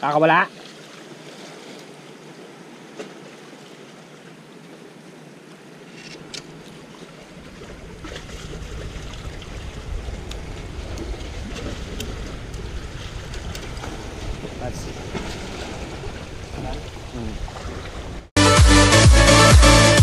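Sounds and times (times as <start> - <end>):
wind buffeting microphone: 7.2 - 18.3.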